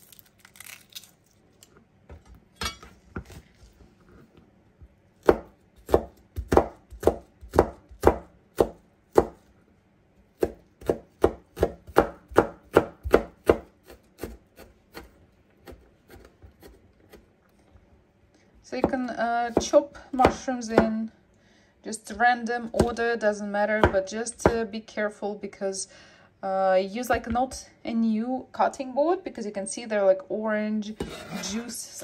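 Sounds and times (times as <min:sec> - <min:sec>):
knife chopping on cutting board: 0:05.2 - 0:09.4, 0:10.4 - 0:17.2, 0:18.8 - 0:20.9.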